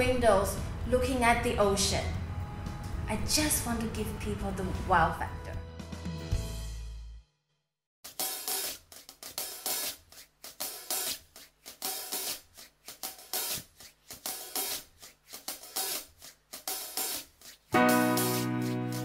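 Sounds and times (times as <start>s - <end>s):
drum beat with hi-hat and cymbals: 8.1s - 19.0s.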